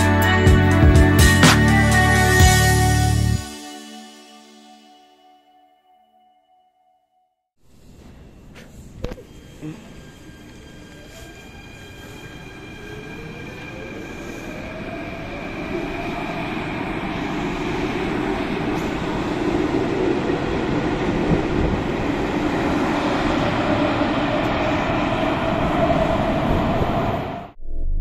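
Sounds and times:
train cars running noise: 7.7s - 27.6s
train motor whine rising: 7.7s - 27.6s.

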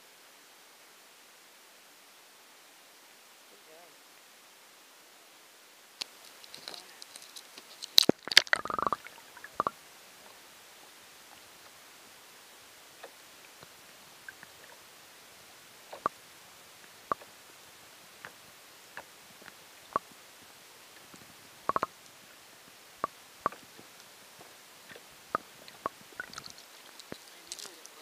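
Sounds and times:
faint underwater hiss: 0.0s - 28.0s
sharp underwater clicks: 6.0s - 9.8s, 15.9s - 16.2s, 17.1s - 17.3s, 21.0s - 22.2s, 23.0s - 24.1s, 24.9s - 28.0s.

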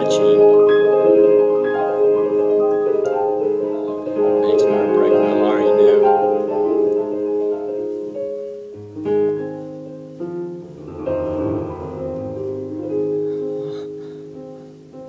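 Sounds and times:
piano chords and melody: 0.0s - 15.0s
low bass note: 10.6s - 14.1s.

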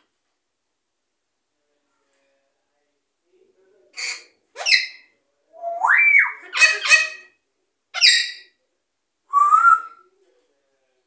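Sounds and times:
parrot squawking: 4.0s - 7.4s, 8.0s - 8.5s.

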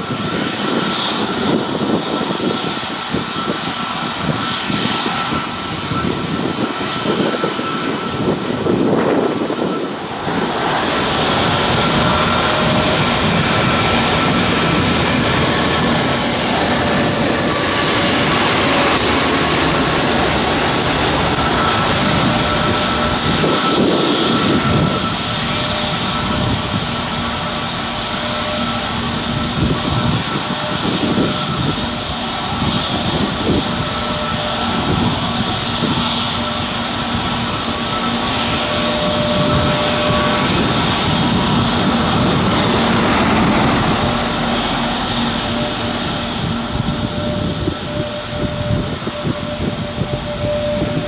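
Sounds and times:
jet engines rushing: 0.0s - 51.0s
high whine sliding down: 1.2s - 51.0s.

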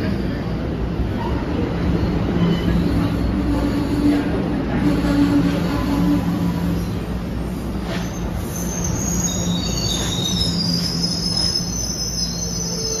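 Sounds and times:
high-pitched brake squeals: 0.0s - 3.4s, 7.8s - 13.0s
train low rumble: 0.0s - 13.0s.

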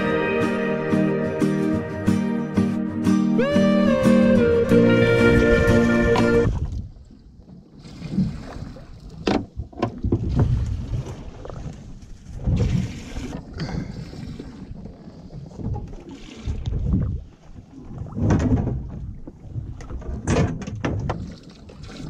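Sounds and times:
wind buffeting microphone: 5.1s - 7.1s, 9.4s - 21.2s
water slapping against boat hull: 6.2s - 22.0s.

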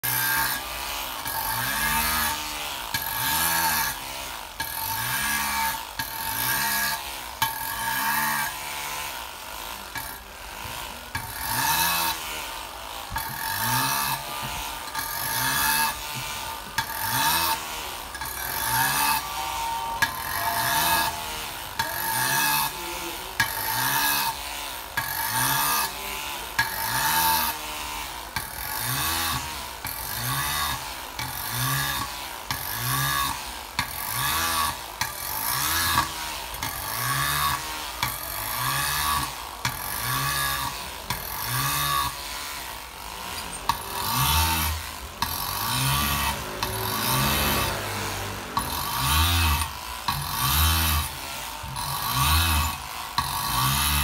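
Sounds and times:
rotary engraving tool grinding metal: 0.0s - 54.0s.

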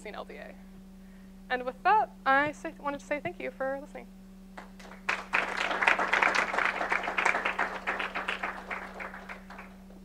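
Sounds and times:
audience applauding: 4.6s - 9.8s.

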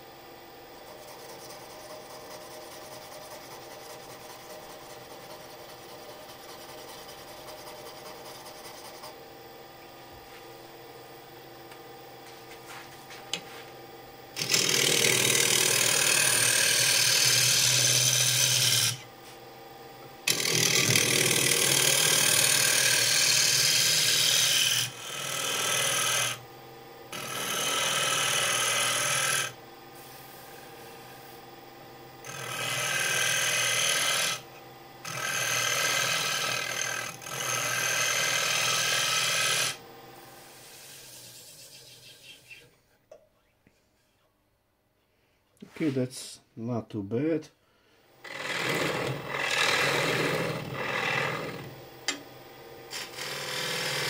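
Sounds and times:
lathe humming: 0.0s - 42.7s, 48.1s - 54.0s
scraper rasping on wood: 0.8s - 9.2s.

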